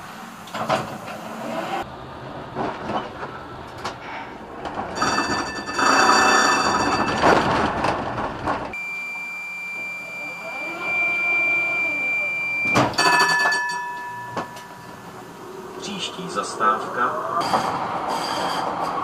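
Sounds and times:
tram running on track: 0.0 - 19.0
high ringing whine: 5.0 - 7.2, 8.8 - 15.8
high electronic tone: 8.8 - 15.0.

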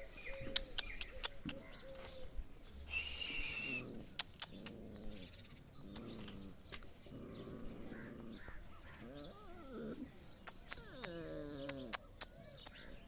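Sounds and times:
light sharp clicks: 0.1 - 1.8, 4.1 - 5.1, 10.4 - 13.0
puppies growling and whining: 3.4 - 12.2.

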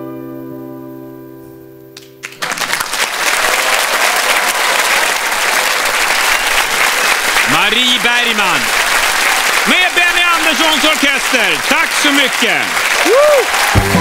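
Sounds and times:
audience applause: 2.2 - 14.0.

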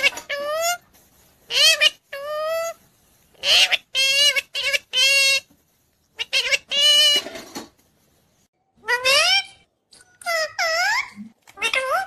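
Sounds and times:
parakeet talking: 0.0 - 0.8, 1.5 - 2.8, 3.4 - 5.5, 6.1 - 7.4, 8.8 - 12.0.

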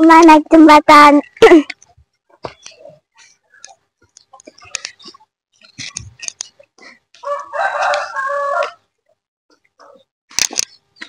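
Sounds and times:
footsteps on bamboo poles: 1.2 - 8.8
rooster crowing: 7.2 - 8.8.

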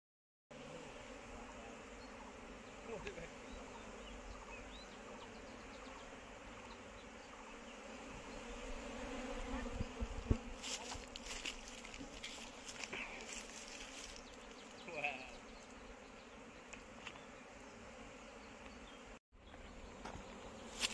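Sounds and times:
bee swarm buzzing: 0.5 - 20.9
scratchy rustling: 10.4 - 14.8.

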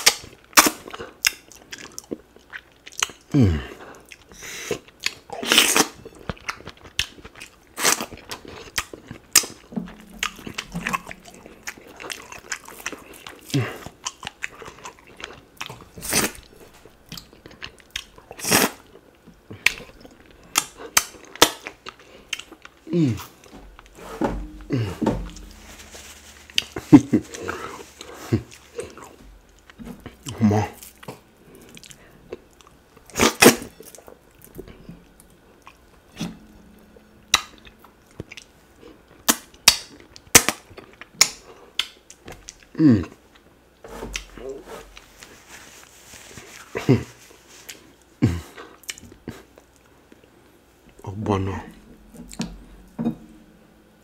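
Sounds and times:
wet eating sounds: 0.0 - 25.4.

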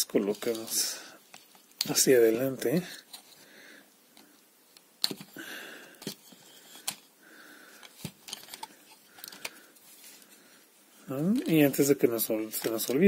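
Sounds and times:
plastic toy parts clicking: 7.8 - 9.6.

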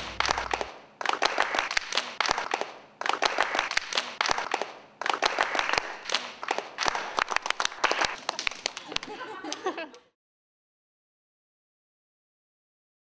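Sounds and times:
people clapping: 0.0 - 10.1.

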